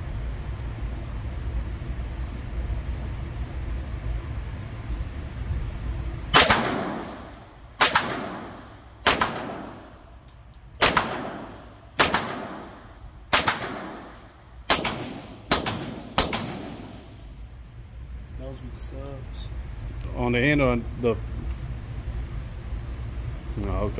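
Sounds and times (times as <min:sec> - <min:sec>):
suppressed gunshots: 0:06.3 - 0:07.2, 0:07.8 - 0:09.9, 0:10.8 - 0:17.1.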